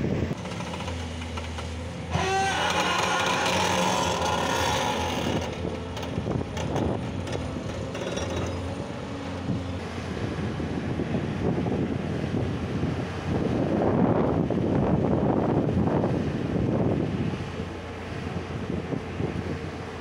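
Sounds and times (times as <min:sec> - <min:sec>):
wind on microphone: 0:00.0 - 0:00.6, 0:04.2 - 0:07.9, 0:09.4 - 0:20.0
heavy diesel machinery running: 0:00.0 - 0:20.0.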